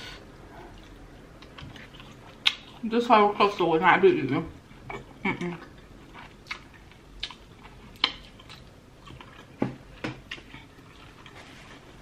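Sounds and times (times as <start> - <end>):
person chewing with wet clicks: 0.6 - 2.9, 4.9 - 11.4.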